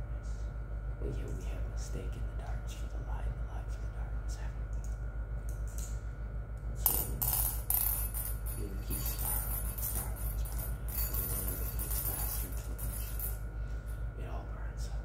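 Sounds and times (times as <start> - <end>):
low hum: 0.0 - 15.0
small objects clinking in bowl: 7.0 - 13.4.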